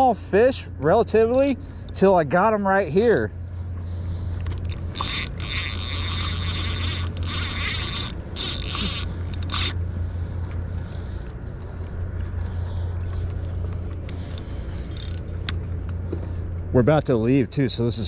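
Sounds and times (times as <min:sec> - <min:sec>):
fishing reel drag buzzing: 0:02.9 - 0:10.0, 0:14.1 - 0:15.6.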